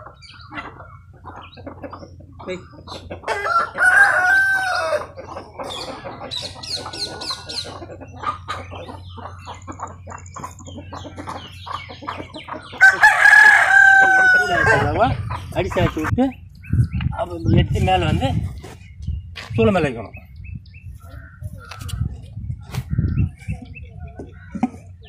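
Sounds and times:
rooster crowing: 3.3 - 5.1, 12.8 - 15.0.

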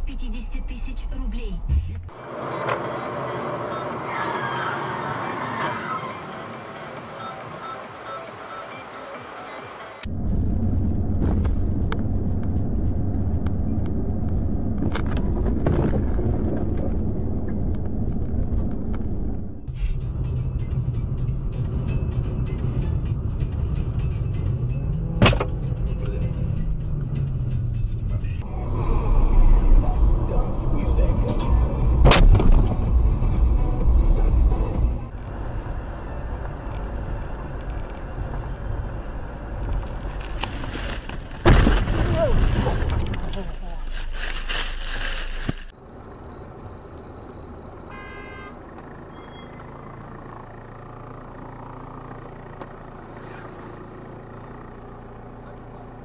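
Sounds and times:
car cabin road and engine rumble: 0.0 - 56.0.

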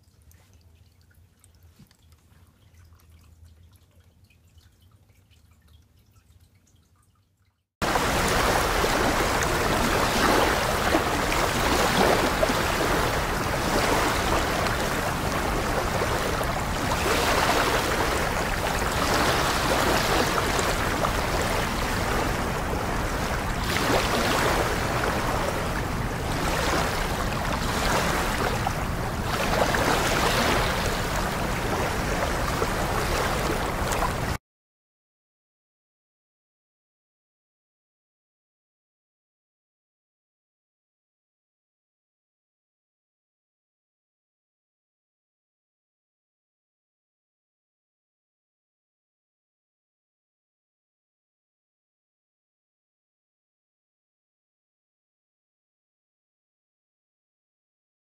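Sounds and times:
water running and trickling: 0.0 - 34.3.

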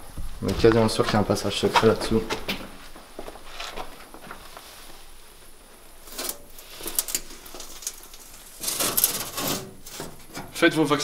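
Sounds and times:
shoes on metal floor plates: 0.4 - 4.6.

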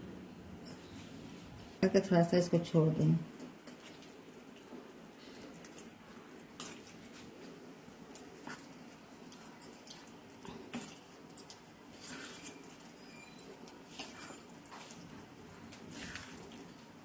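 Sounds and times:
wet squelching of paste: 3.4 - 17.0.

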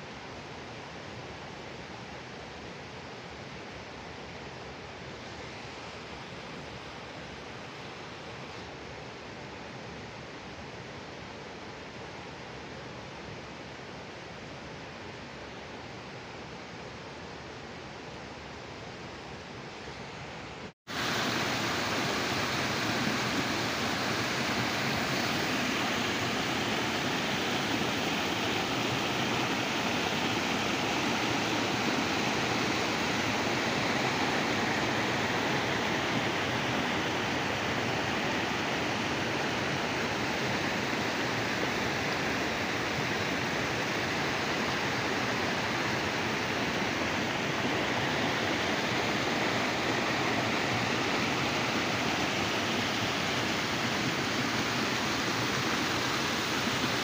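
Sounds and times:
stream rushing over boulders: 20.9 - 57.0.

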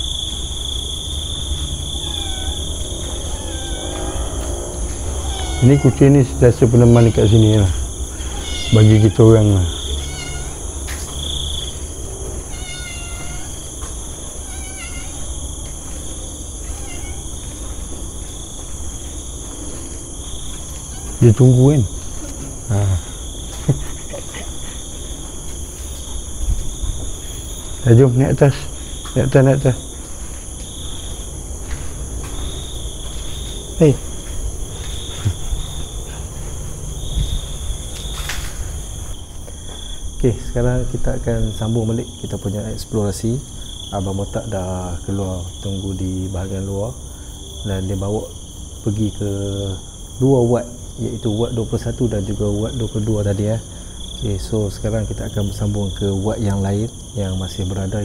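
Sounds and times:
insects chirring: 0.0 - 58.0
cat meowing: 1.6 - 10.7, 12.4 - 15.4, 16.6 - 17.7, 20.6 - 21.4.

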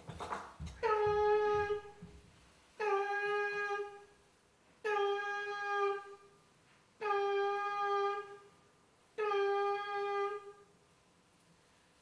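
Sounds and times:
horn-like wind instrument note: 7.0 - 8.3.

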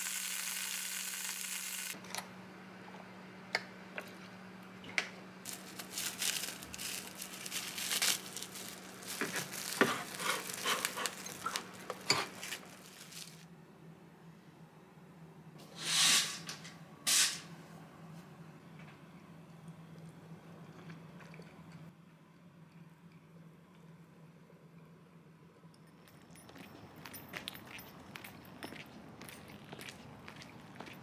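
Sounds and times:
bacon sizzling in a frying pan: 0.0 - 2.0.

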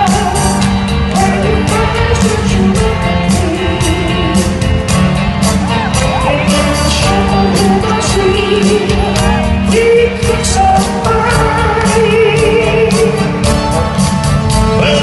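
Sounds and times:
keyboards: 0.0 - 15.0
live soul band playing: 0.0 - 15.0
steady drum beat: 0.0 - 15.0
man singing: 6.0 - 13.3, 14.5 - 15.0.

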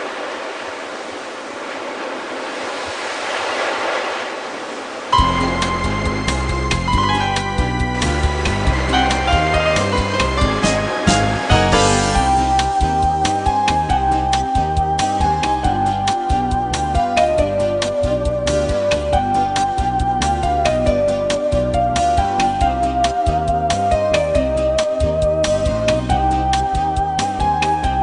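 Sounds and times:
ocean waves breaking: 0.0 - 18.1
music: 5.2 - 28.0.

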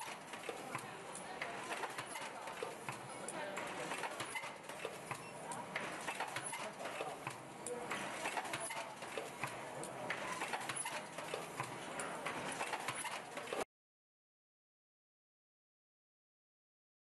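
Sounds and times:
machine clattering clicks and knocks: 0.0 - 13.6.

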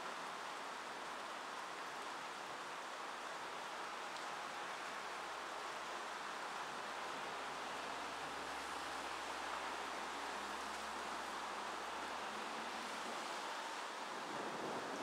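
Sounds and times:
thunderstorm hiss: 14.2 - 15.0.

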